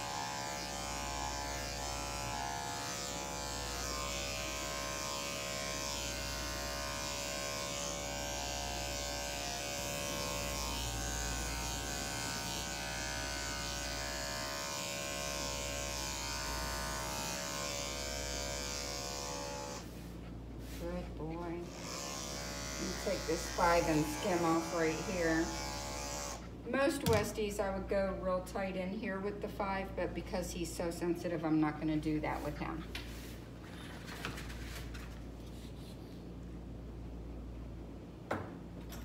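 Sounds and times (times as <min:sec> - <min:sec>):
electric clipper humming: 0:00.0 - 0:19.9, 0:21.5 - 0:26.5.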